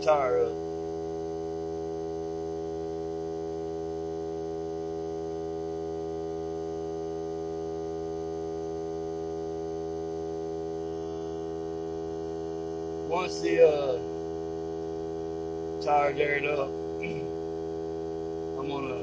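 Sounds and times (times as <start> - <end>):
air compressor humming: 10.7 - 19.0.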